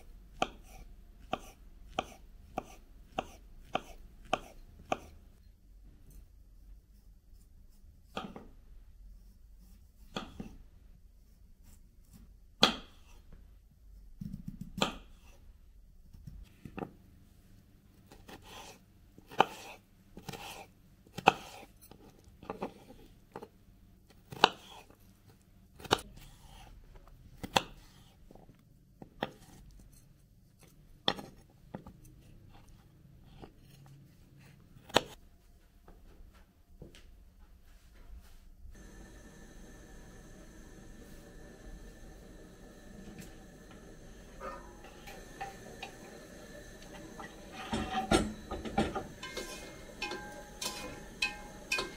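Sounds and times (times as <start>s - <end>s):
knife chopping on cutting board: 0.4s - 5.2s, 18.1s - 21.7s, 24.3s - 24.8s.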